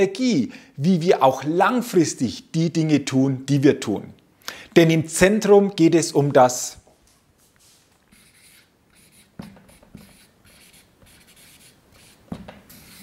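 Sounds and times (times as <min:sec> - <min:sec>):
marker scratching on paper: 0:08.1 - 0:13.0.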